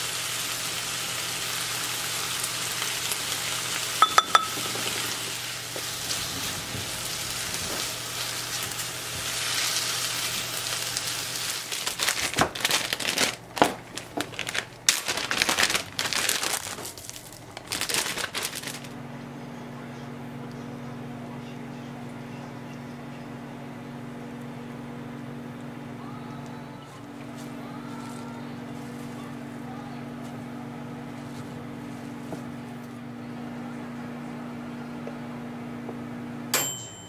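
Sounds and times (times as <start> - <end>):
food sizzling in a frying pan: 0.0 - 11.9
low steady hum: 4.0 - 37.0
plastic zipper bag crinkling: 9.4 - 19.0.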